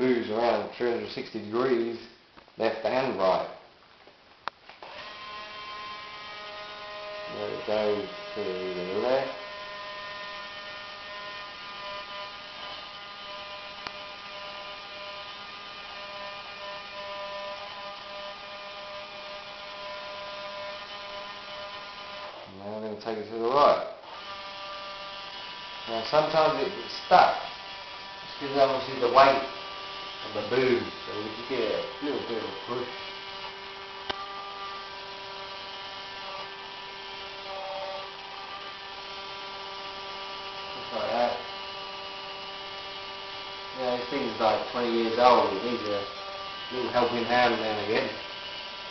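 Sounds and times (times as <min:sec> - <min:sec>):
small gear motor whirring: 0:04.8 - 0:22.5, 0:24.0 - 0:48.9
click: 0:13.8 - 0:14.0.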